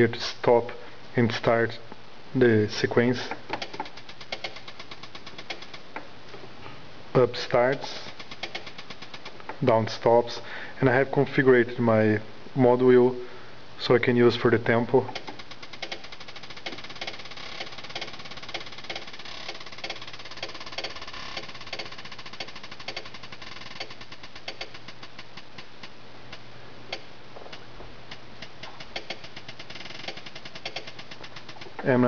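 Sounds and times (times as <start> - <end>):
drum machine pattern: 7.2 - 9.0.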